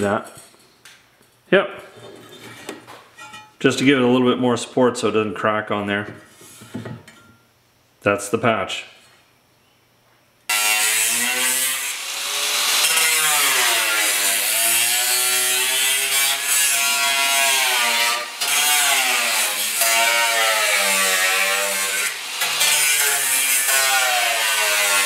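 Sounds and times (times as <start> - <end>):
angle grinder grinding steel: 10.5 - 25.0.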